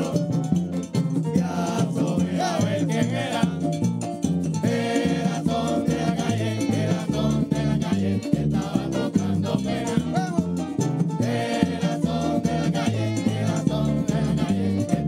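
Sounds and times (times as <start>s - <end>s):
men singing together: 0.0s - 0.7s, 1.3s - 4.0s, 4.6s - 10.6s, 11.2s - 15.0s
frame drums beating: 0.0s - 15.0s
scraped guiro: 0.0s - 15.0s.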